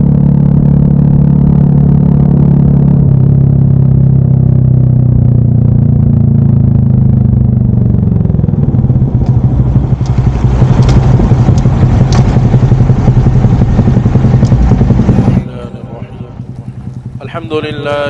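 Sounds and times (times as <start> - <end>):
motorcycle engine running: 0.0 - 18.0
sharp clicks: 10.0 - 12.4.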